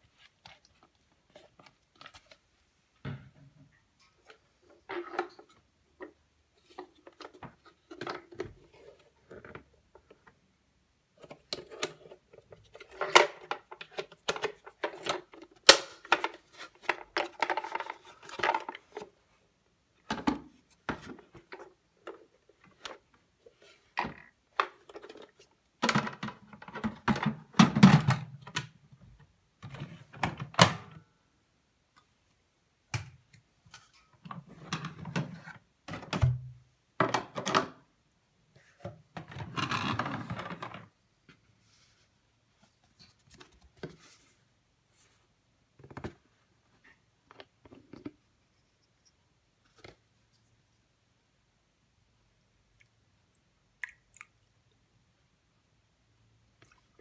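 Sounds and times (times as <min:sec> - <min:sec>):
plastic clicks and clatter: 0:11.2 - 0:19.1.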